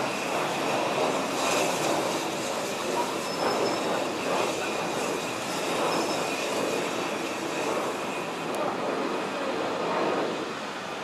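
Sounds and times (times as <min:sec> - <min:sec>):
train wheels rolling on track: 0:00.0 - 0:08.6
high wheel squeal: 0:03.0 - 0:04.3, 0:05.2 - 0:06.5.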